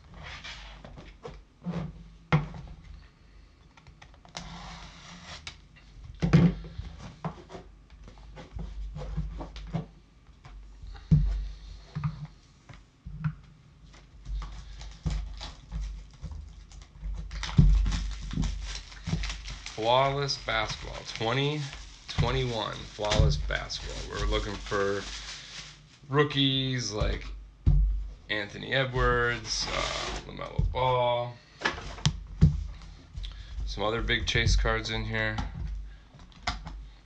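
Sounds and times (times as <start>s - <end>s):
rustling and sliding: 0.0s - 2.0s, 17.6s - 26.1s.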